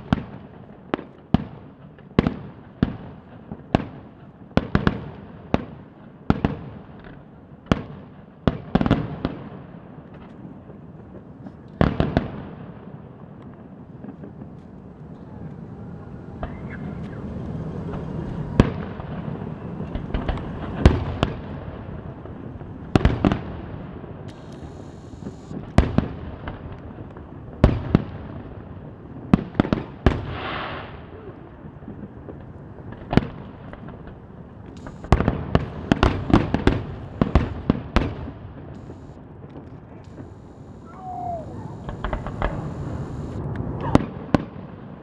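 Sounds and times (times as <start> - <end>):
firework shells bursting: 33.7 - 43.7
firework hiss: 34.8 - 38.2, 40.1 - 43.5.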